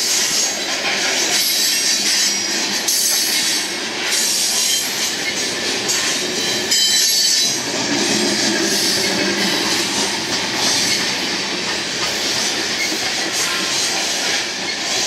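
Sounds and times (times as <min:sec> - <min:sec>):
freight train rumbling rattle: 0:00.0 - 0:15.0
high-pitched wheel squeal: 0:04.2 - 0:07.6.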